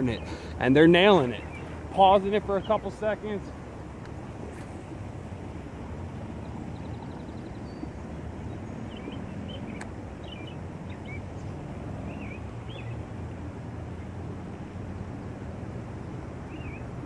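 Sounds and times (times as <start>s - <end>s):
small birds chirping: 0.0s - 3.6s, 6.4s - 13.0s, 16.5s - 17.0s.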